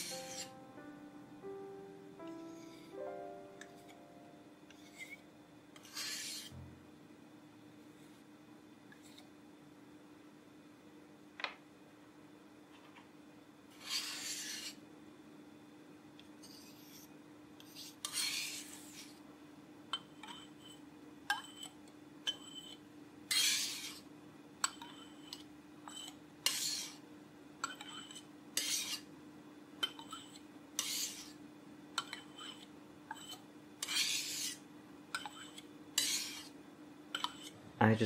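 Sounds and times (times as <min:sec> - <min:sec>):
palette knife scraping glass: 0:00.0 - 0:00.6, 0:04.7 - 0:05.2, 0:05.8 - 0:06.6, 0:13.8 - 0:14.8, 0:16.4 - 0:19.2, 0:20.2 - 0:24.1, 0:24.7 - 0:27.0, 0:27.6 - 0:29.1, 0:30.0 - 0:31.4, 0:32.0 - 0:34.6, 0:35.2 - 0:37.5
faint steady hum: 0:00.0 - 0:38.0.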